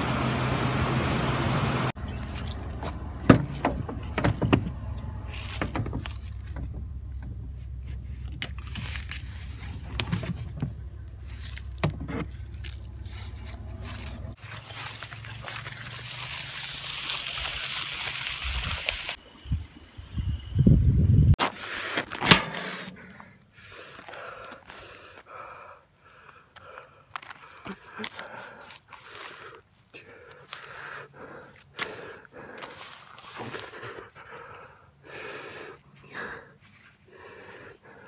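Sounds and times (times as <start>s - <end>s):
low steady hum: 0.0s - 14.4s.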